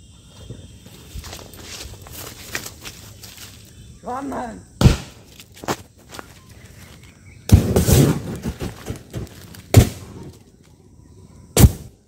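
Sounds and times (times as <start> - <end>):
firecrackers banging: 7.5 - 10.3
firecrackers crackling: 7.5 - 10.3.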